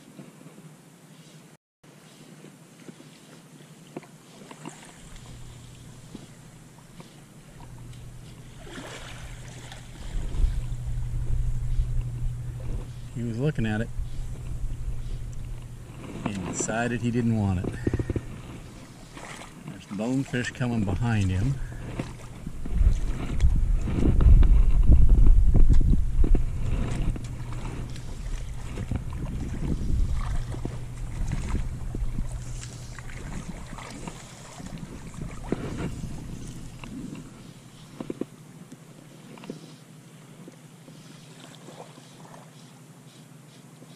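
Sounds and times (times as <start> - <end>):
moving water: 0.0 - 43.9
steady low hum: 4.0 - 43.9
wind buffeting microphone: 7.4 - 19.2, 20.4 - 37.5.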